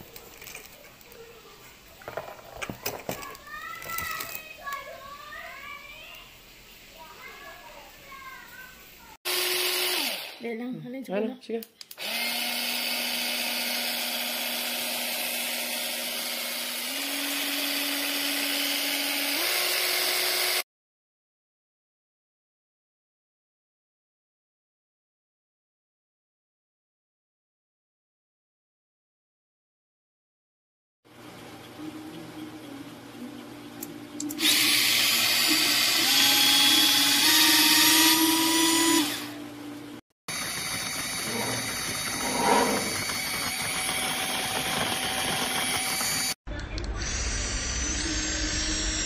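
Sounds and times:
electric egg beater whine: 9.3s - 10.5s, 12.0s - 20.6s, 31.2s - 49.0s.

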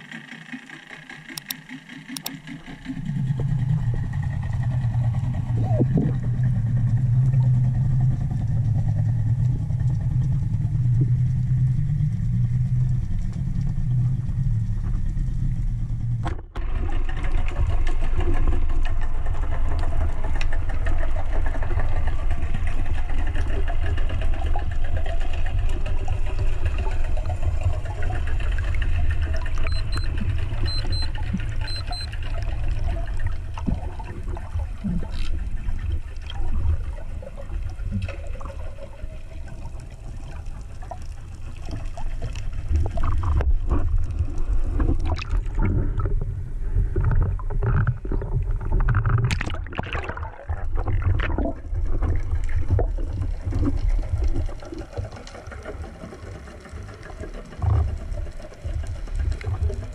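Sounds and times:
low rumble of water: 0.0s - 59.9s
small clicks: 1.2s - 2.5s, 29.6s - 32.1s, 35.1s - 35.4s
bubbles: 2.2s - 15.3s, 23.4s - 59.9s
water swishing: 16.8s - 59.9s.

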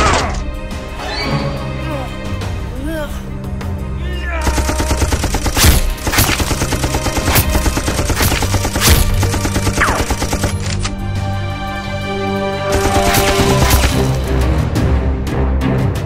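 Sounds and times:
background music: 0.0s - 16.0s
automatic gunfire: 4.4s - 10.7s, 12.7s - 14.0s.

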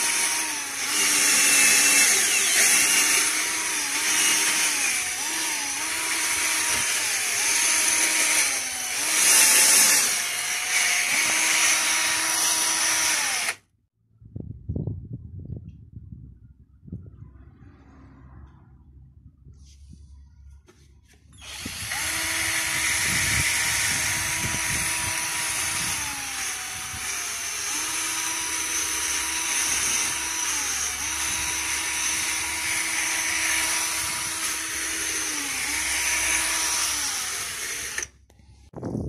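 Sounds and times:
drill motor whine: 0.0s - 13.6s, 21.4s - 38.2s.

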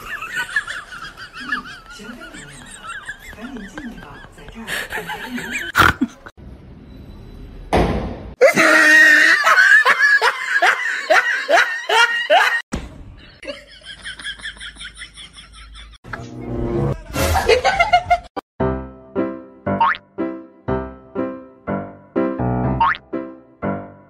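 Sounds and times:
hearty laughter: 0.0s - 6.3s, 8.4s - 12.6s, 13.4s - 16.0s, 17.3s - 18.3s.

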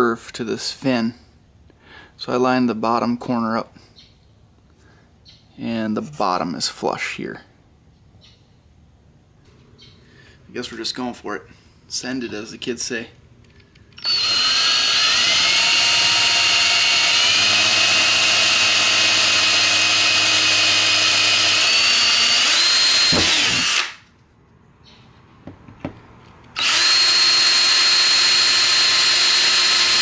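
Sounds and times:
cordless drill whining: 13.8s - 24.1s, 26.6s - 30.0s.

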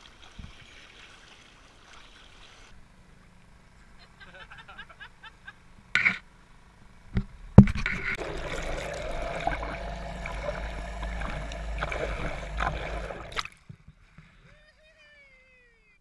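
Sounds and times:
motor droning underwater: 5.8s - 13.6s
outboard motor hum: 7.8s - 13.6s
propeller wash and bubbles: 7.8s - 13.7s.

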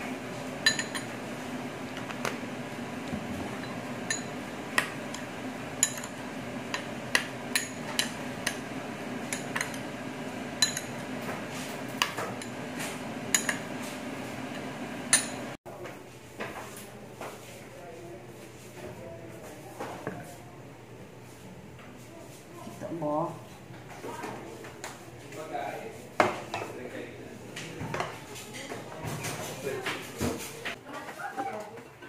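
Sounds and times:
steady low hum: 0.0s - 15.6s
metal spoon clinking glass bowl: 0.6s - 1.1s, 5.8s - 6.2s, 10.6s - 11.0s.

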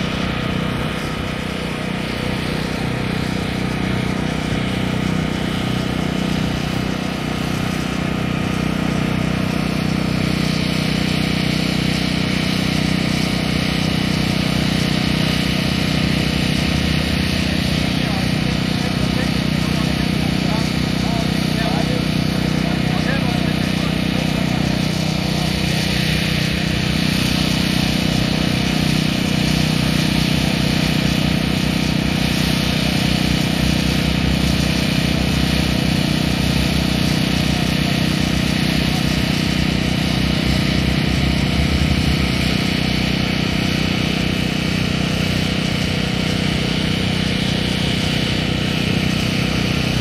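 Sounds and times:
propeller engines droning: 0.0s - 50.0s.

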